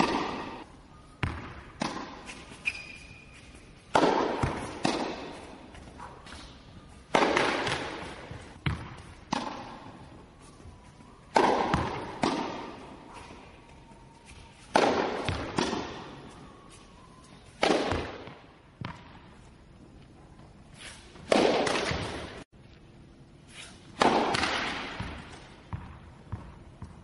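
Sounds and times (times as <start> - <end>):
tennis ball struck by rackets: 0.0 - 0.6, 1.2 - 2.4, 3.9 - 6.5, 7.1 - 10.0, 11.3 - 13.0, 14.6 - 16.2, 17.6 - 19.2, 21.2 - 22.4, 23.9 - 26.5.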